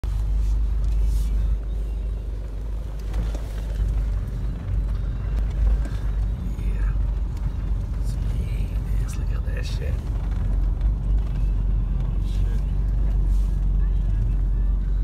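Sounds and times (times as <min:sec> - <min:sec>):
vehicle engine rumbling: 0:00.0 - 0:15.0.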